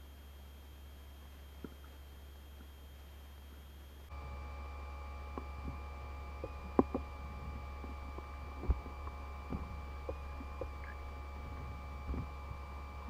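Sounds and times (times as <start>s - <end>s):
faint high whining tones: 0.0s - 13.0s
low electrical hum: 0.0s - 13.0s
underwater clicks and knocks: 6.4s - 7.2s.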